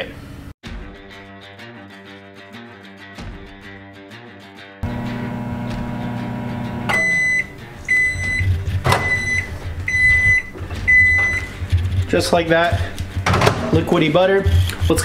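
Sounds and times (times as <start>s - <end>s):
microwave oven humming: 4.8s - 8.4s
microwave beeps: 6.6s - 11.5s.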